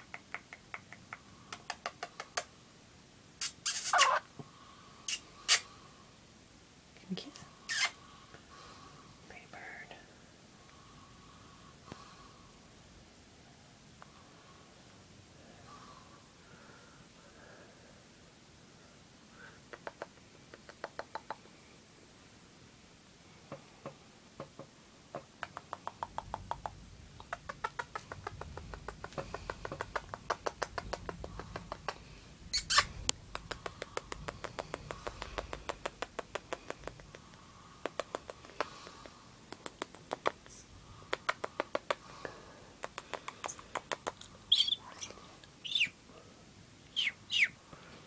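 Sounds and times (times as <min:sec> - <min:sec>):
parrot kissing clicks and smacks: 0:00.0 - 0:02.5, 0:03.4 - 0:04.2, 0:05.1 - 0:05.6, 0:19.7 - 0:21.5, 0:25.2 - 0:32.0, 0:32.6 - 0:42.0, 0:42.8 - 0:44.8
parrot chirps: 0:03.4 - 0:04.3, 0:05.1 - 0:05.7, 0:07.7 - 0:08.0, 0:32.5 - 0:32.9, 0:43.2 - 0:46.0, 0:46.9 - 0:47.6.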